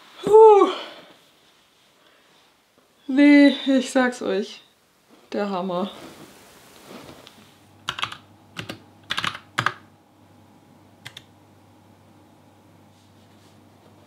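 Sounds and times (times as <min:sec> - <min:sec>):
typing on computer keyboard: 0:07.9 - 0:09.8, 0:11.0 - 0:11.3.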